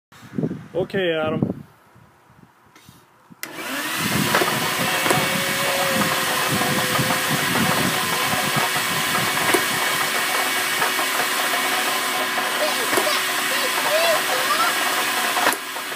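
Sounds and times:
blower motor whine: 3.4s - 15.9s.

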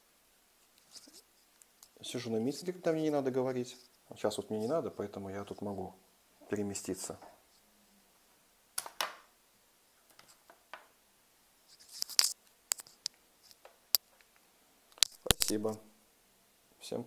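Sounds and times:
sharp clicks: 14.9s - 15.8s.

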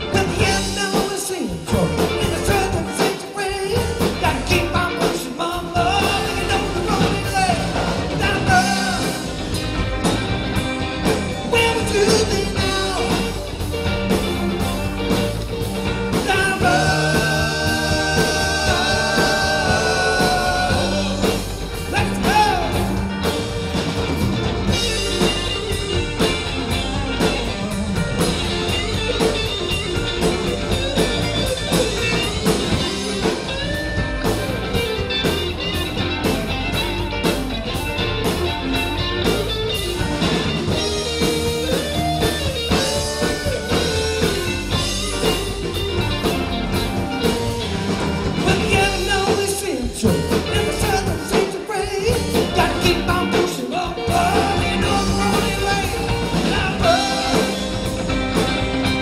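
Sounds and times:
drum kit: 0.0s - 59.0s
electric guitar: 0.0s - 59.0s
person singing: 16.1s - 23.0s, 48.4s - 58.1s.

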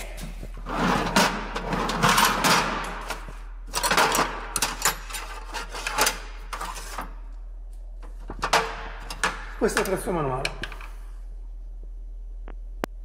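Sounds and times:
metal tools rattling and clinking: 1.0s - 7.0s.

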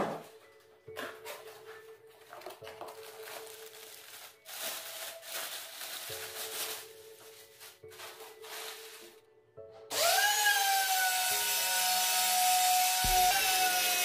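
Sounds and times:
plastic bag crinkling: 2.2s - 9.2s.

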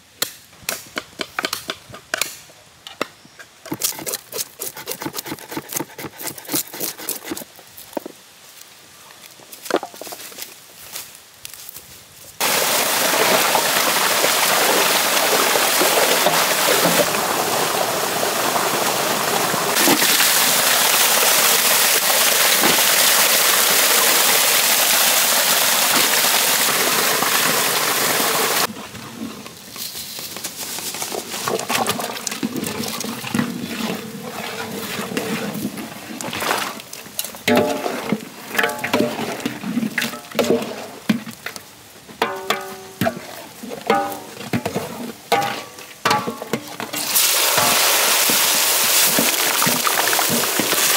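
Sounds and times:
ladle scraping metal pot: 3.7s - 7.5s, 42.2s - 47.9s
water gushing into metal basin: 12.4s - 28.7s, 47.0s - 50.9s.

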